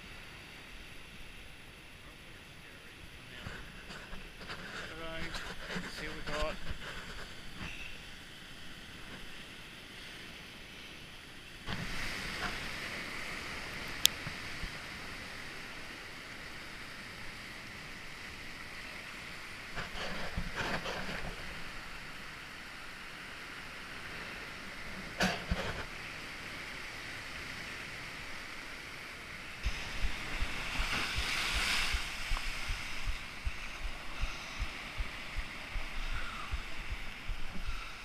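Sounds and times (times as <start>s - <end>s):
surf washing over rocks: 0.0s - 38.0s
wind on microphone: 29.5s - 38.0s.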